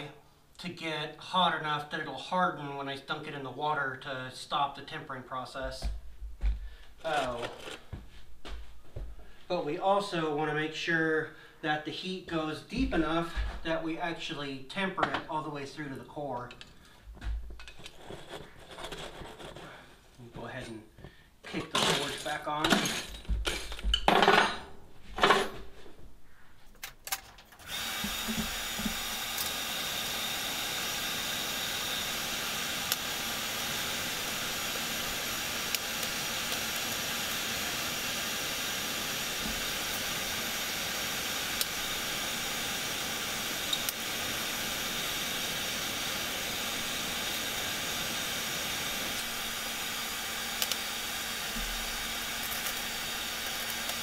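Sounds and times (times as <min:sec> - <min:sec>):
electric air blower running: 0:27.6 - 0:54.0.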